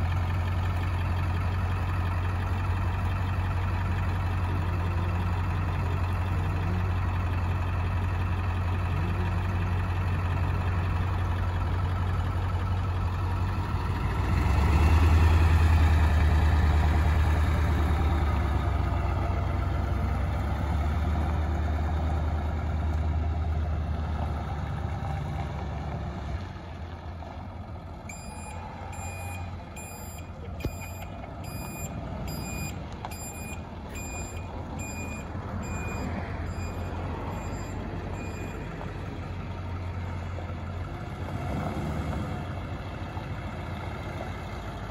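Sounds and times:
diesel truck engine: 0.0s - 44.9s
backup alarm beeping: 28.1s - 38.6s.

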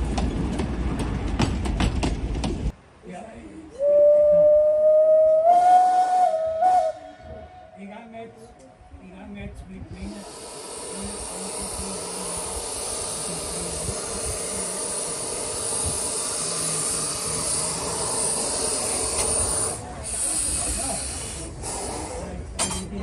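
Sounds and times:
steam locomotive hissing: 10.0s - 23.0s.

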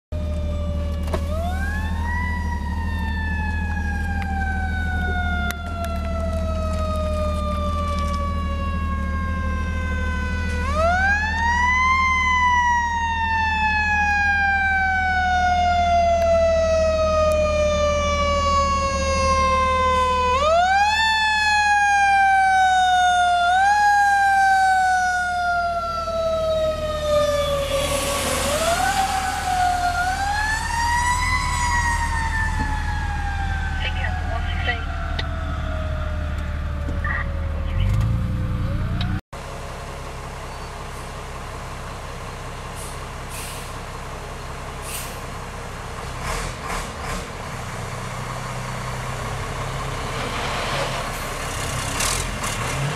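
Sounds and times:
fire engine siren wailing: 0.1s - 52.9s
low engine hum: 0.2s - 52.9s
tyres rushing on wet road: 24.1s - 36.7s, 39.6s - 52.9s.

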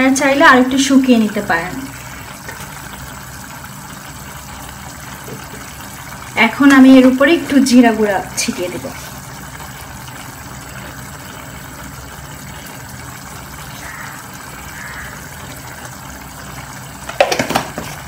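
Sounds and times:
curry bubbling in saucepan: 0.0s - 18.0s.

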